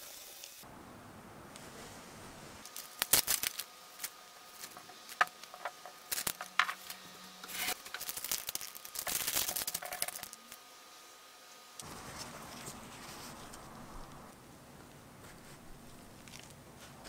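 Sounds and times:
plastic bag crinkling: 2.7s - 4.8s, 7.5s - 10.6s.

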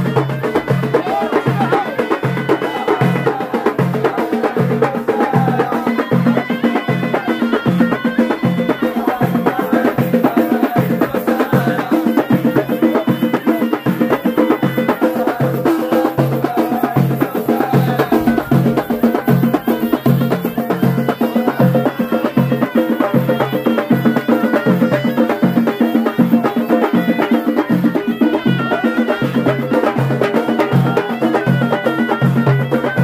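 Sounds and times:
frame drums beaten in steady rhythm: 0.0s - 33.0s
wavering reed pipe melody: 5.5s - 30.0s.

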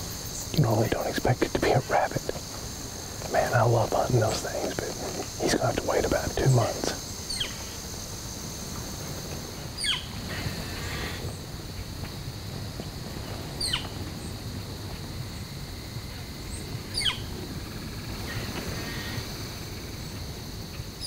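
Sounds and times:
high-pitched insect drone: 0.0s - 11.8s.

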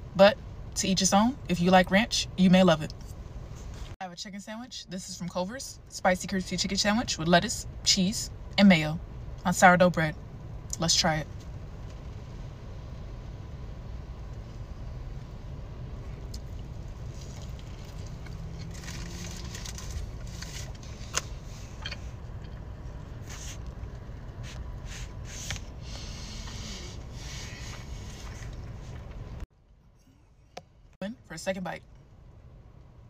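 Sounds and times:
low rumble inside car: 0.0s - 33.0s
crunchy chewing: 16.3s - 21.2s.

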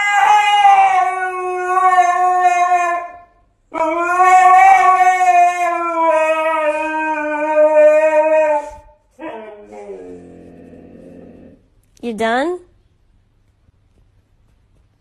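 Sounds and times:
husky howling: 0.0s - 11.6s.

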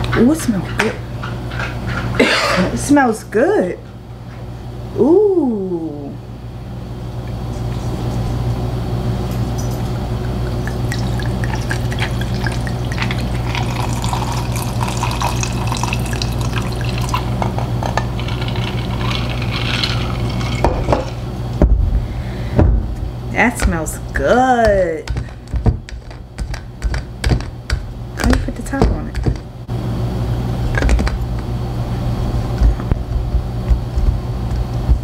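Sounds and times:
low electrical hum: 0.0s - 35.0s
liquid pouring over ice: 10.5s - 17.4s, 18.1s - 20.9s
ice cubes crackling and clinking: 18.2s - 20.6s.

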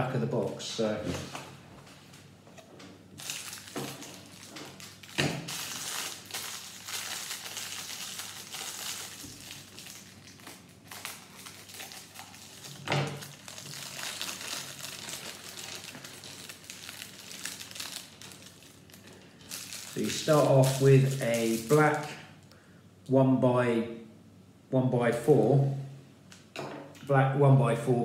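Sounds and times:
plastic bag crinkling: 3.1s - 22.2s.

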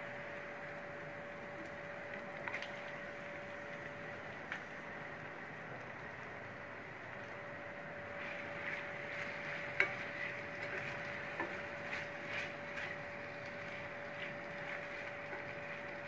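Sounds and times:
steady hum: 0.0s - 16.0s
food sizzling in a frying pan: 8.0s - 16.0s
spatula scraping a pan: 8.2s - 16.0s.

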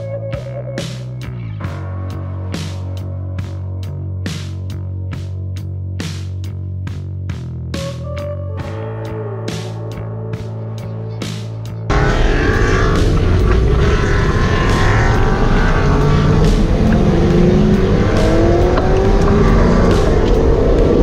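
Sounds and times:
car engine accelerating: 11.9s - 21.0s.

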